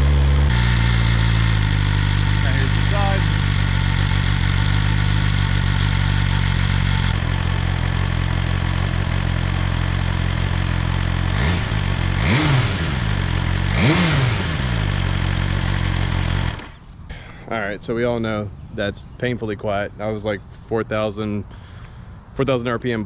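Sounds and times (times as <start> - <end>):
motorcycle engine idling: 0.0 - 17.4
motorcycle throttle blips: 0.0 - 19.6.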